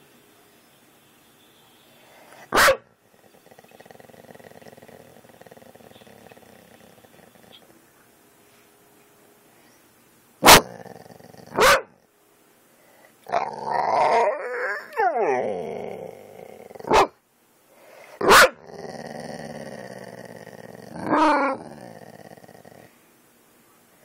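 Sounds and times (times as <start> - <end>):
dog barking: 2.4 - 2.9, 10.4 - 10.8, 11.5 - 12.0, 16.8 - 17.2, 18.2 - 18.6
dog howling: 13.3 - 17.1, 18.4 - 22.2.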